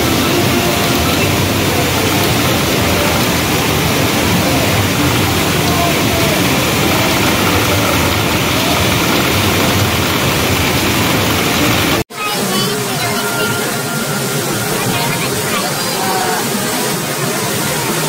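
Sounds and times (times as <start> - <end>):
din of gaming machines: 0.0 - 18.0
faint voices: 0.0 - 18.0.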